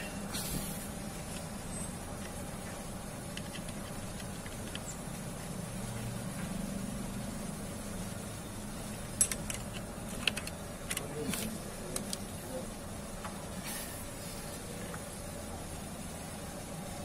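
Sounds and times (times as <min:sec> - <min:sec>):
steady low hum: 0:00.0 - 0:17.0
small metallic clicks: 0:09.2 - 0:12.2.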